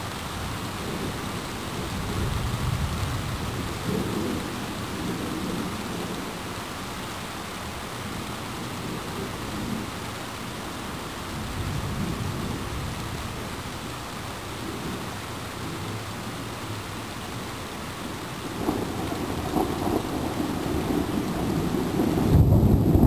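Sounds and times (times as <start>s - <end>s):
steady rain: 0.0s - 23.0s
low thunder rumbling: 0.4s - 6.7s, 11.4s - 13.6s, 18.4s - 23.0s.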